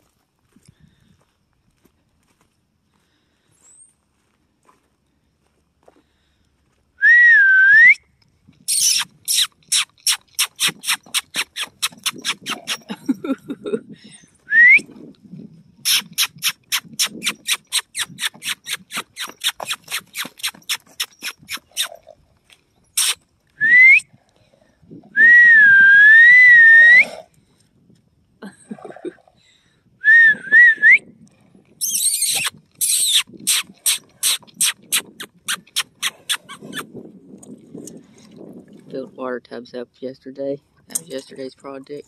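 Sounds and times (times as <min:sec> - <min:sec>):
person whistling: 0:07.0 - 0:08.0, 0:14.5 - 0:14.8, 0:23.6 - 0:24.1, 0:25.2 - 0:27.0, 0:30.0 - 0:31.0
sharp mouth clicks: 0:08.6 - 0:13.0, 0:15.8 - 0:22.0, 0:23.0 - 0:23.2, 0:31.8 - 0:38.4.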